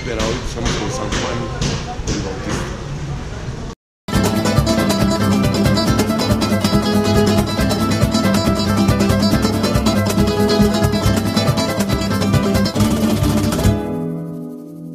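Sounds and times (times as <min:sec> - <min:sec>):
strummed acoustic guitar: 0:04.1 - 0:14.9.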